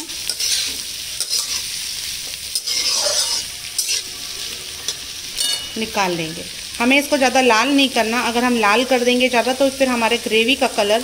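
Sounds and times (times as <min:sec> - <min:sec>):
onions sizzling in hot fat: 0:00.0 - 0:11.0
steel spatula scraping pan: 0:00.2 - 0:05.9.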